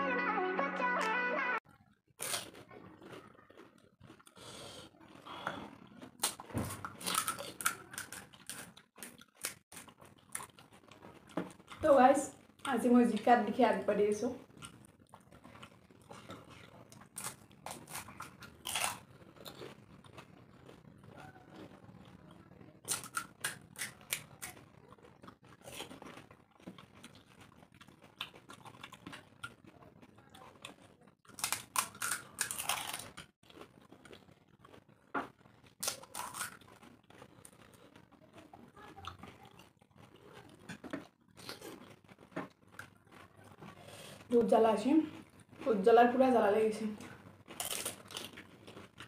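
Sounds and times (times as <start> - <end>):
crisp shells cracking and crunching: 2.2 - 12.8, 14.4 - 44.0, 47.1 - 49.0.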